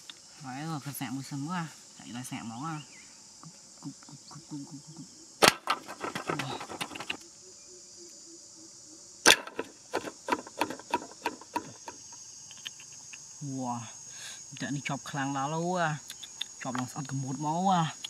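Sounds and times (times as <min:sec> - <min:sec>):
crickets chirring: 0:00.0 - 0:18.0
light wooden clicks and clatters: 0:05.4 - 0:07.2, 0:09.3 - 0:13.3
sharp snaps: 0:12.5 - 0:13.3, 0:16.0 - 0:17.2.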